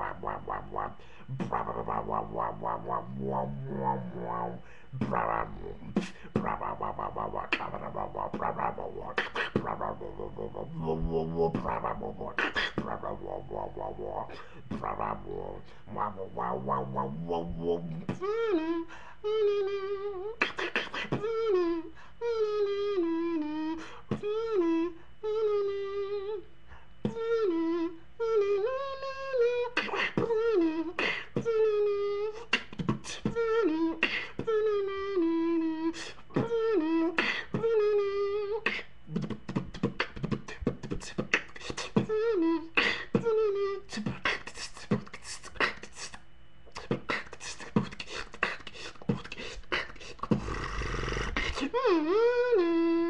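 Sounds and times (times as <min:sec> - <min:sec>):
beatbox wobble bass: 0:00.0 - 0:26.4, 0:27.0 - 0:53.0
beatbox kick and snare hits: 0:32.6 - 0:33.4, 0:38.7 - 0:42.2, 0:44.0 - 0:46.1, 0:46.7 - 0:50.6.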